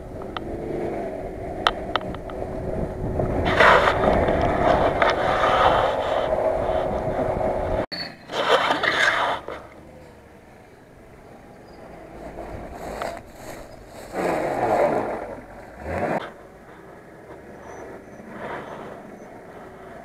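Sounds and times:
scraping rush: 0.0s - 10.2s, 11.1s - 20.0s
off-road vehicle driving on grass: 0.0s - 20.0s.

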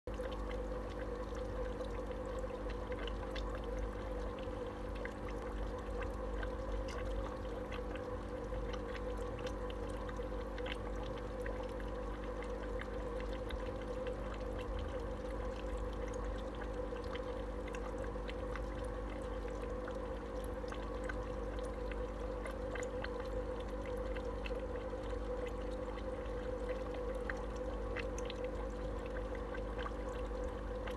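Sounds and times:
sponge filter bubbling: 0.1s - 30.9s.

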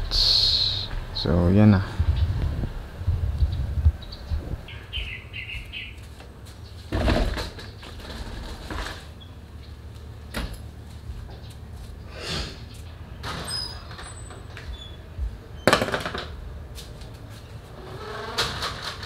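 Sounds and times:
bird chirps: 3.4s - 6.8s
handling knocks on concrete floor: 15.7s - 16.4s.

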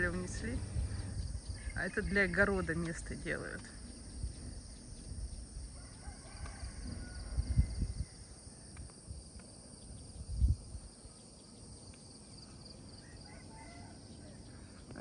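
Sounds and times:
low muffled thumps: 0.0s - 1.4s
insects chorus: 0.0s - 15.0s.

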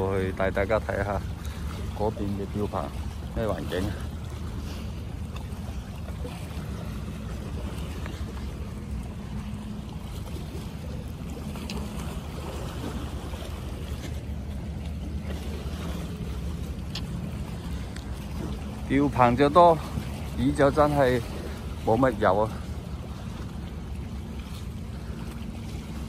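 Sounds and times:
low rumble and hum: 0.0s - 26.0s
water lapping against rocks: 0.0s - 26.0s.

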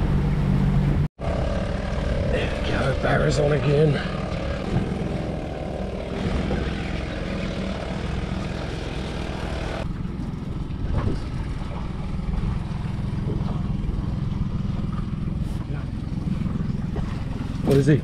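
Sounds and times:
outboard motor idling: 0.0s - 18.0s.

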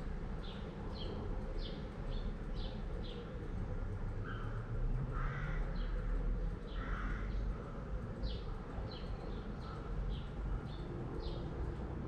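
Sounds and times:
small birds chirping: 0.0s - 12.0s
steady low background noise: 0.0s - 12.0s
bird cawing: 4.2s - 6.0s, 6.7s - 7.8s.

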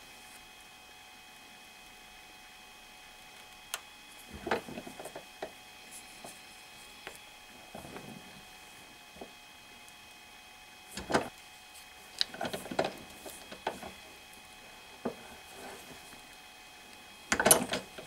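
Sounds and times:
metal parts clicking against vise: 17.3s - 18.0s.

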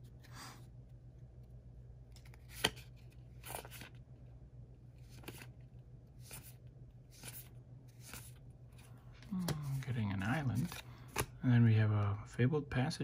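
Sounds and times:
low steady hum: 0.0s - 13.0s
cards swishing against each other: 5.0s - 11.4s.

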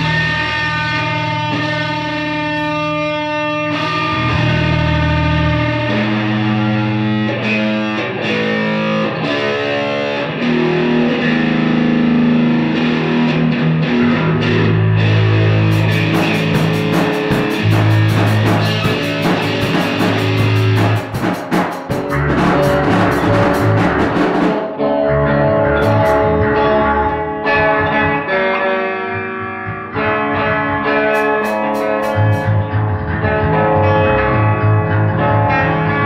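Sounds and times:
electric guitar chords: 0.0s - 36.0s
cymbal crashes: 15.7s - 24.6s, 31.2s - 32.6s
drums playing: 15.7s - 24.8s, 25.8s - 26.2s, 31.1s - 32.6s.

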